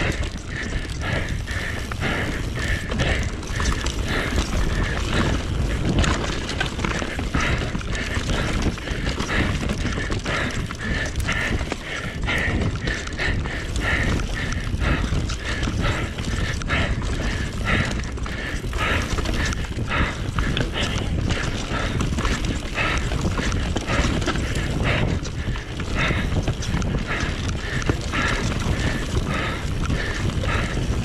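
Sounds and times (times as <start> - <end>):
bike clattering over bumps: 0.0 - 31.0
bike tyres rumbling over dirt: 0.0 - 31.0
wind buffeting microphone: 0.0 - 31.0.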